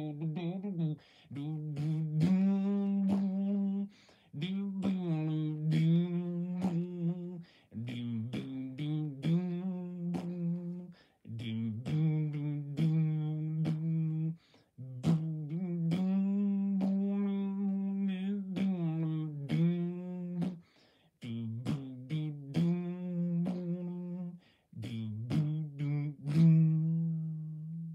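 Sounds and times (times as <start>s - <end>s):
person humming: 0.0s - 27.9s
mouth clicks and pops: 4.4s - 10.8s, 11.4s - 14.2s, 14.8s - 17.7s, 21.2s - 24.2s.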